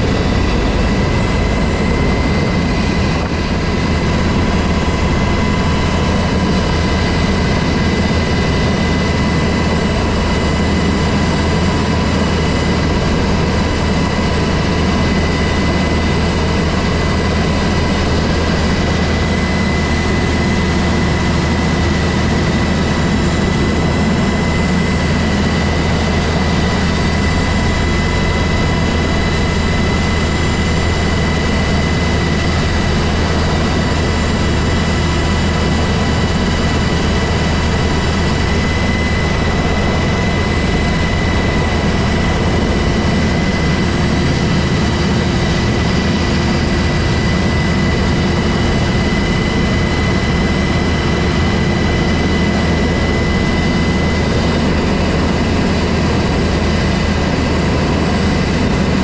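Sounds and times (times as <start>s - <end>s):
helicopter engines and rotor drone: 0.0s - 59.0s
high turbine whine: 0.0s - 59.0s.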